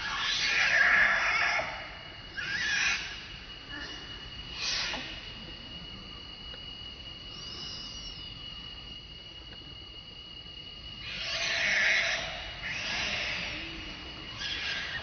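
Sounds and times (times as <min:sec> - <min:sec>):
monkey screaming: 0:00.0 - 0:05.2, 0:11.0 - 0:15.0.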